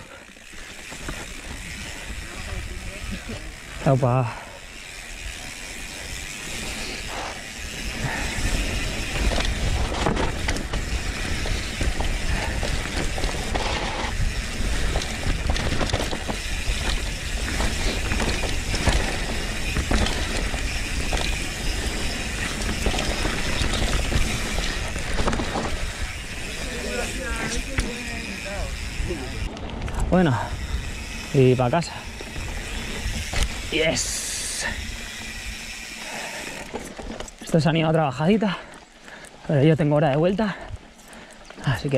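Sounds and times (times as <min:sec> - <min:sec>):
bike rattling and knocking: 0:00.0 - 0:41.9
bike tyres rolling over dirt: 0:00.0 - 0:41.9.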